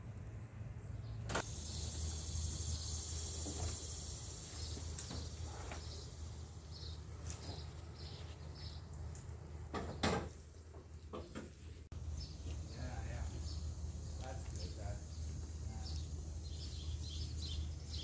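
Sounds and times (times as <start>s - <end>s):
insect buzzing: 1.4s - 6.1s.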